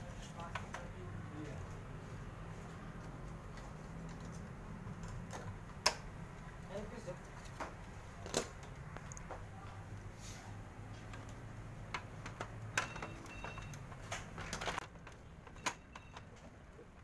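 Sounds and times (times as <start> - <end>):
sharp plastic snaps: 5.0 - 6.1.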